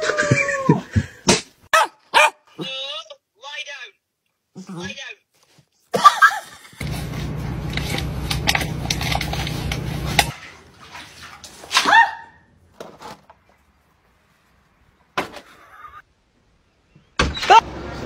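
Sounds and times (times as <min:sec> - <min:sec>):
dog yelp: 0:01.7 - 0:02.4, 0:11.7 - 0:12.4.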